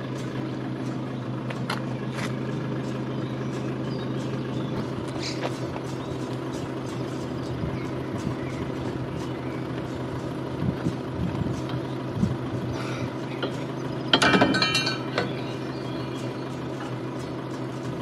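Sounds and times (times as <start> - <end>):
steady engine hum: 0.0 - 18.0
metallic clinking rattle: 13.4 - 15.6.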